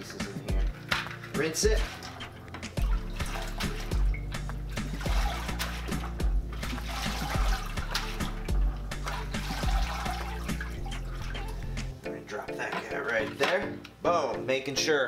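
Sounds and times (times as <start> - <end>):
water sloshing in a bucket: 0.0 - 11.9
background music with steady beat: 0.0 - 15.0.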